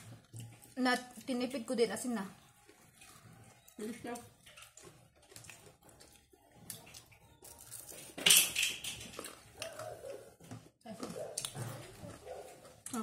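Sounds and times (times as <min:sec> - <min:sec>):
chewing: 0:00.0 - 0:01.6, 0:02.4 - 0:08.2, 0:09.0 - 0:13.0
sharp crunch of fried food: 0:04.4 - 0:10.1.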